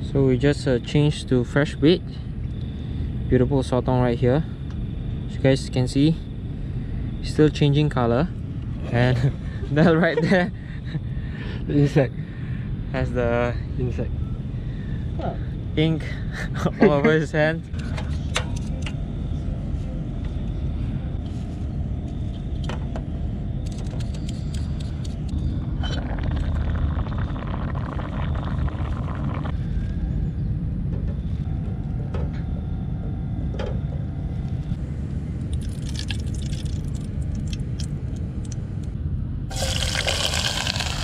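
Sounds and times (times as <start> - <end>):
liquid pouring into metal pot: 35.5 - 37.6, 39.5 - 41.0
onion sizzling in hot oil: 39.5 - 41.0.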